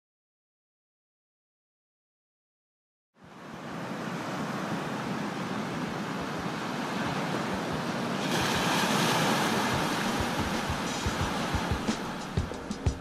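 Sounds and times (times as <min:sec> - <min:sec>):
sea waves rushing: 0:03.2 - 0:13.0.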